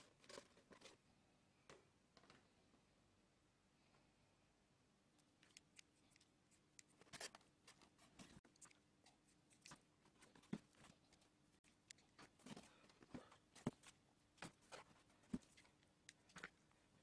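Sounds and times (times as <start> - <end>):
faint clicks and taps: 5.2 - 16.9.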